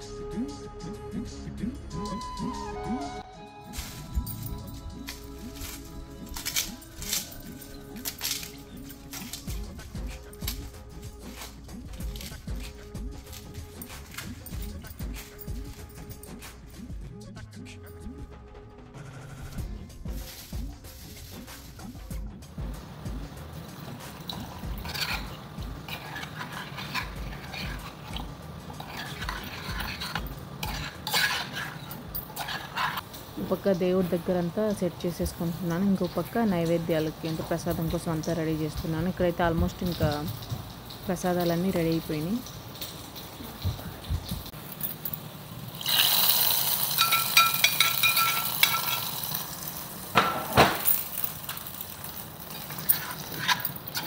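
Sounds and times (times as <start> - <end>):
metal spoon scraping and clinking pan: 4.5 - 16.4, 23.3 - 33.6, 44.6 - 54.0
nuts sizzling in milk: 20.0 - 54.0
milk pouring into saucepan: 45.7 - 50.0.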